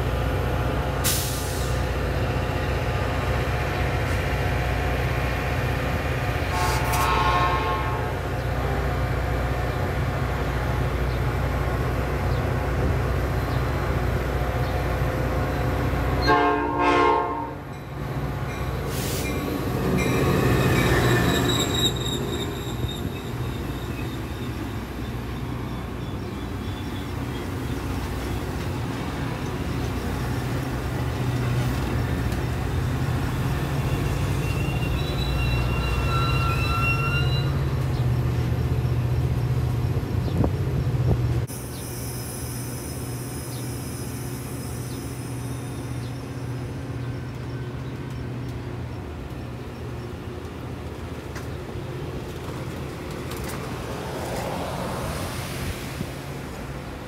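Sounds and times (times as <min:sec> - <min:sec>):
train wheels rumbling on rail: 0:00.0 - 0:57.0
thin wheel squeal: 0:20.0 - 0:24.6, 0:33.8 - 0:37.7.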